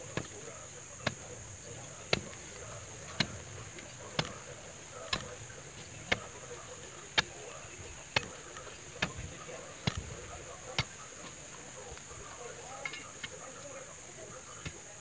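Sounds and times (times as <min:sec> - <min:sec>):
digging bar thudding into soil: 0:02.1 - 0:03.5, 0:04.1 - 0:06.4, 0:08.1 - 0:11.0.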